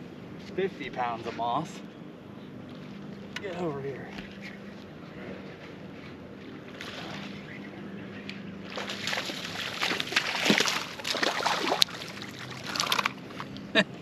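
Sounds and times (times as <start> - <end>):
fish splashing in water: 8.6 - 13.4.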